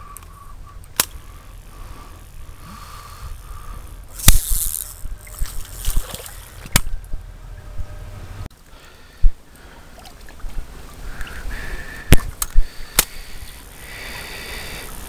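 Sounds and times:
low steady rumble: 0:00.0 - 0:15.0
fishing reel clicks and knocks: 0:00.1 - 0:06.9, 0:12.1 - 0:15.0.

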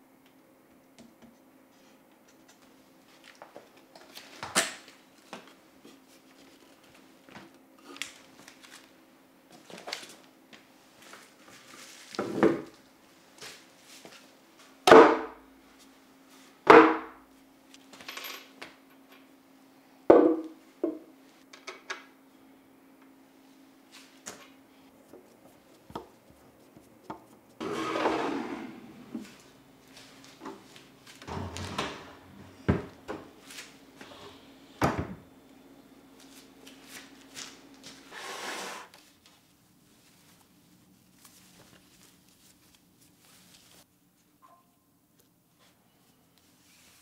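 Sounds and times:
furniture parts knocking and clattering: 0:31.2 - 0:33.4.

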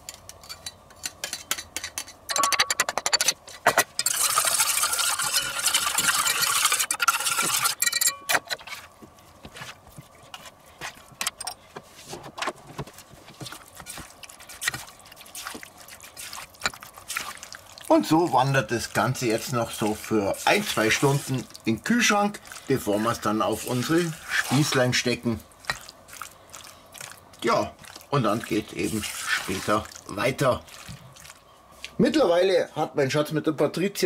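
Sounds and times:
spoon clinking in metal bowl: 0:04.0 - 0:08.4.

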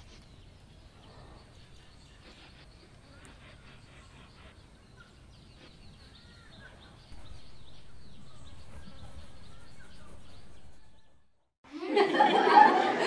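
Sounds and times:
small birds chirping: 0:00.0 - 0:11.4
low background rumble: 0:07.1 - 0:11.4.

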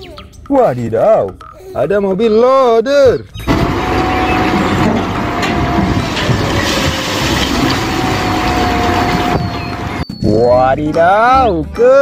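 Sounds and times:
wheel loader diesel engine and hydraulics: 0:03.4 - 0:10.4
rubble spilling from bucket: 0:03.5 - 0:10.0.

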